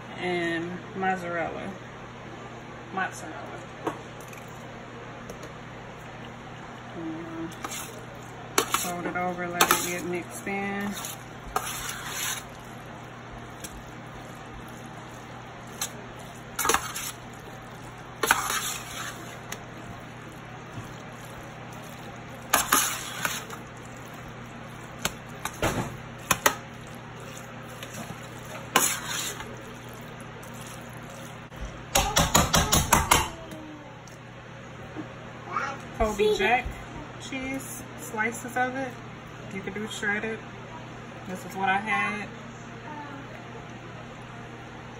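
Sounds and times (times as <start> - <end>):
utensil stirring macaroni: 7.3 - 33.1
utensil scraping and clinking pan: 18.2 - 19.3, 28.6 - 29.5.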